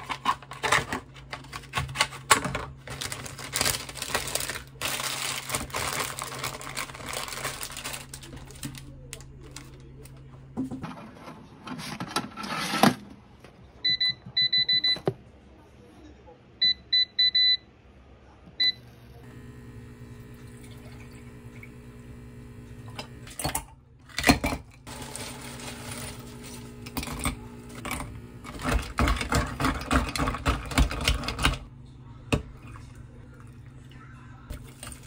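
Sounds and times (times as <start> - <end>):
plastic bag crinkling: 2.8 - 9.8, 24.9 - 26.9
touch panel beeps: 13.9 - 15.0
air fryer fan humming: 18.6 - 35.0.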